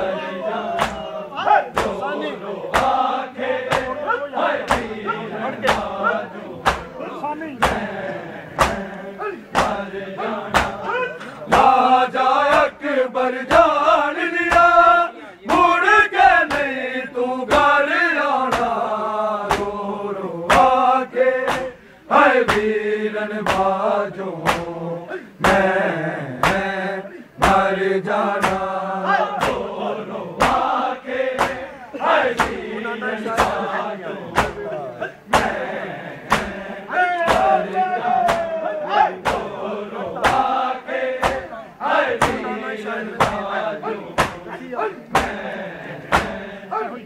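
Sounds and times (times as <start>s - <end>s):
men chanting in unison: 0.0s - 47.0s
hands slapping bare chests: 0.8s - 1.1s, 1.7s - 2.0s, 2.7s - 3.0s, 3.7s - 4.0s, 4.6s - 5.0s, 5.6s - 5.9s, 6.6s - 6.9s, 7.6s - 7.9s, 8.6s - 9.0s, 9.6s - 9.8s, 10.5s - 10.9s, 14.5s - 14.7s, 18.5s - 18.8s, 19.5s - 19.8s, 20.5s - 20.7s, 21.4s - 21.8s, 22.4s - 22.7s, 23.4s - 23.7s, 24.4s - 24.7s, 25.4s - 25.6s, 26.4s - 26.7s, 28.4s - 28.7s, 29.4s - 29.7s, 30.4s - 30.7s, 31.4s - 31.7s, 32.4s - 32.6s, 33.3s - 33.6s, 34.4s - 34.6s, 35.3s - 35.6s, 36.3s - 36.6s, 37.2s - 37.6s, 38.2s - 38.6s, 39.2s - 39.5s, 40.2s - 40.5s, 41.2s - 41.5s, 42.2s - 42.5s, 43.2s - 43.4s, 44.2s - 44.4s, 45.1s - 45.5s, 46.1s - 46.4s.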